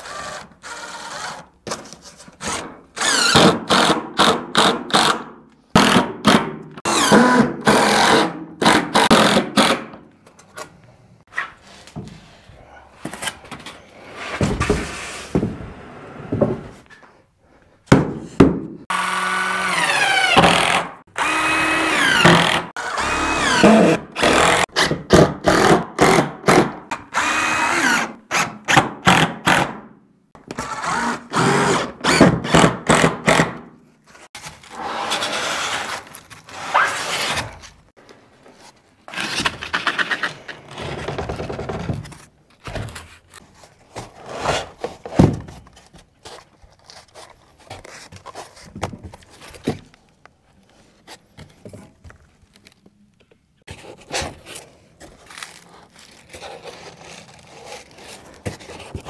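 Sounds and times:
cordless drill driving screws: 6.9s - 9.7s, 18.9s - 24.6s.

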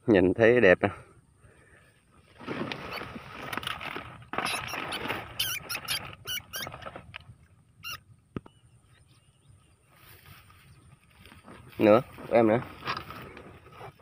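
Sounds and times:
dry stubble rustling: 2.2s - 8.0s, 9.8s - 14.0s
rats squeaking: 4.3s - 7.0s, 7.8s - 8.1s.

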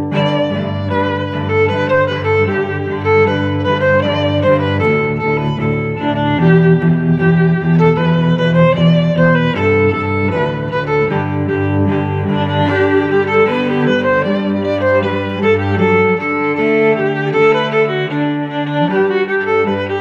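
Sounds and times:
violin and cello held notes: 0.0s - 20.0s.

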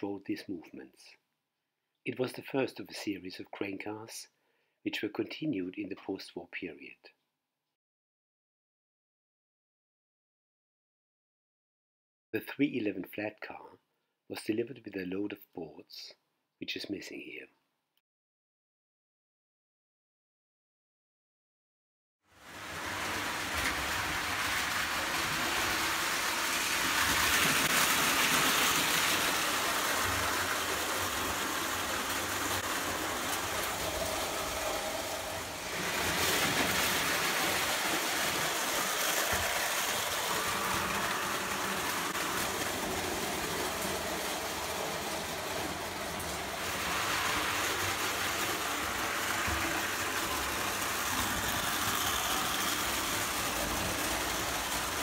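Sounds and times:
toy trains rolling on metal track: 22.4s - 55.0s.

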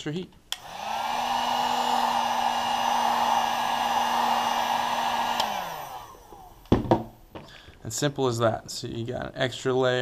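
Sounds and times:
heat gun blowing air: 0.5s - 6.8s.

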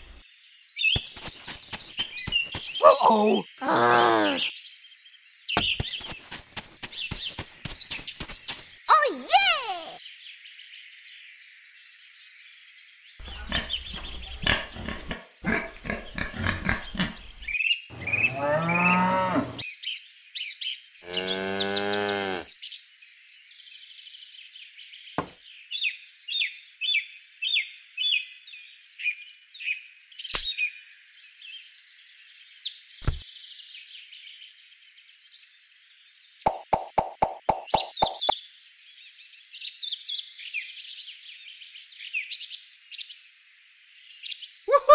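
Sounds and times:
faint bird song: 0.0s - 9.0s, 9.7s - 44.9s
bird chirping: 13.2s - 19.2s, 36.4s - 38.4s
cow mooing: 17.9s - 19.6s, 21.0s - 22.5s.

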